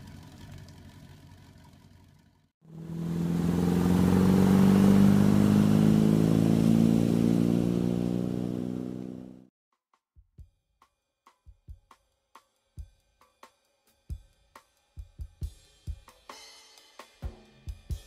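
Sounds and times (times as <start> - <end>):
boat engine running: 0.0 - 9.5
rushing water: 2.7 - 9.2.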